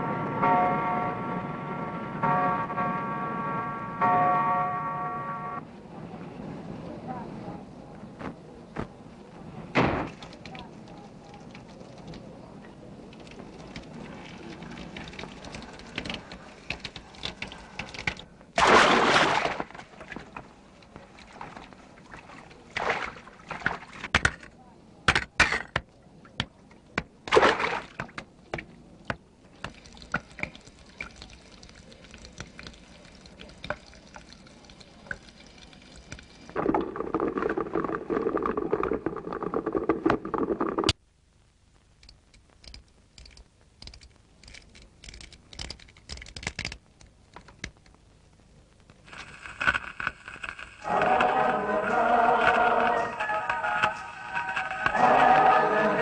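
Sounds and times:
water running: 10.1s - 24.0s, 29.5s - 40.9s
small knocks and clicks: 42.0s - 48.0s
music: 50.9s - 56.0s.

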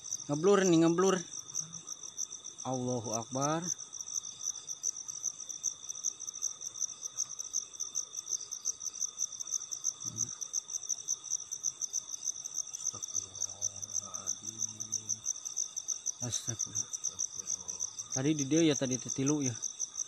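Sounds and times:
crickets chirring: 0.0s - 20.0s
faint low hum: 12.8s - 15.4s, 16.2s - 19.6s.

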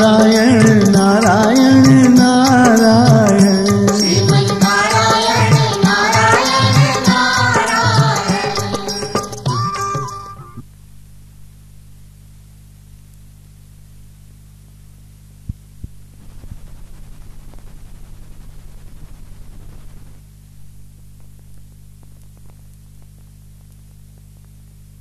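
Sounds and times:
faint tape hiss: 0.0s - 25.0s
mains hum: 0.0s - 25.0s
fast crackling: 15.4s - 24.6s.

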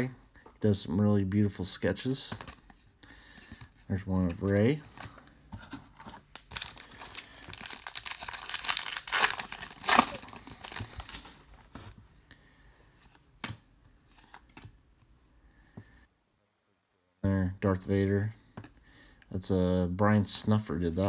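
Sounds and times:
wrapper tearing and crinkling: 6.3s - 11.4s.

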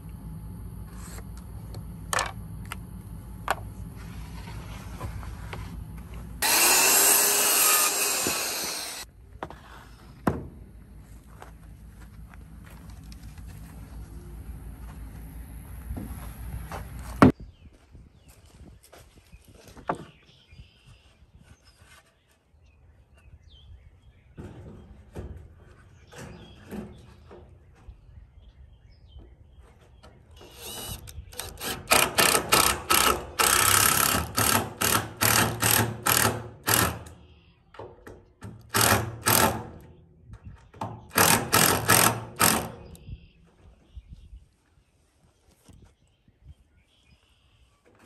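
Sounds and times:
cordless drill driving screws: 6.4s - 9.1s, 30.4s - 37.1s, 38.7s - 39.6s, 41.1s - 42.8s.

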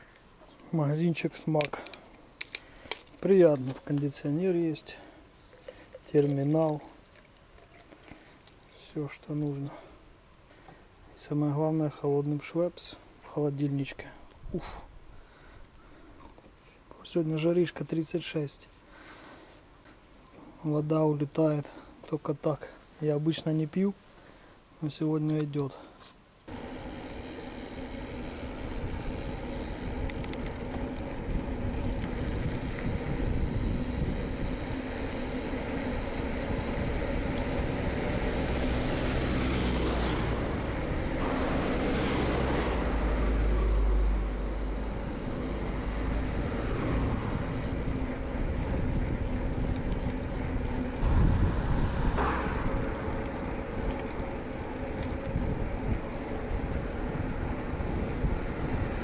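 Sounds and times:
motor vehicles passing: 26.5s - 59.0s
wind on microphone: 31.2s - 35.3s, 51.0s - 54.2s, 55.0s - 59.0s.

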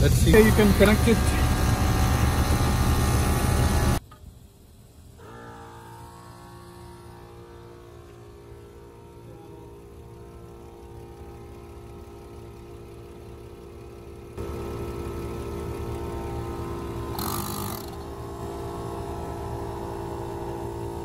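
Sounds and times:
machinery humming: 0.0s - 4.0s, 4.7s - 21.0s.

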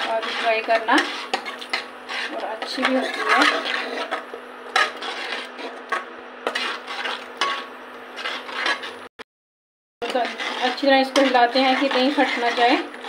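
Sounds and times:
spoon scraping metal pan: 0.0s - 9.1s, 10.0s - 13.0s.

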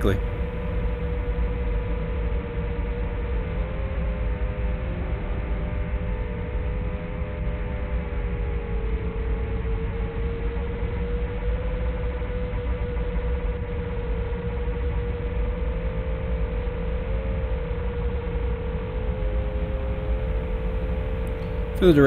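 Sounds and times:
small drone motors humming: 18.2s - 22.0s.

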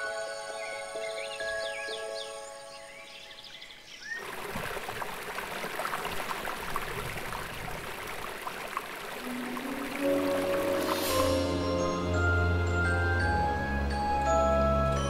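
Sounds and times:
water stream splashing on rock: 4.2s - 11.3s.

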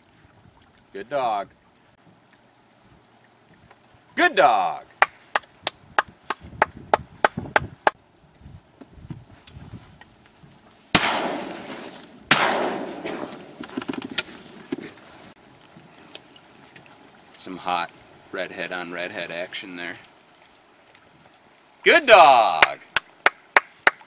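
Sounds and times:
shotgun shots with echo: 10.9s - 13.6s.

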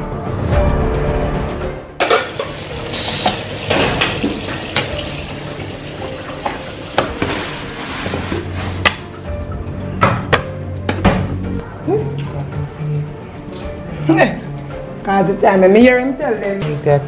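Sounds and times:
meat sizzling in oil: 2.0s - 8.2s
pots and utensils clinking: 2.0s - 9.0s.

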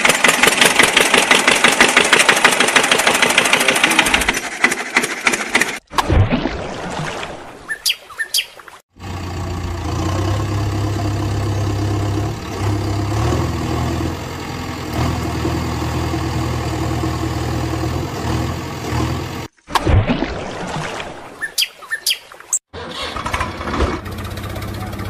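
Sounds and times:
engine idling: 0.0s - 5.8s, 9.0s - 19.5s, 22.9s - 25.0s
bird chirps: 7.6s - 8.6s, 21.4s - 22.4s.

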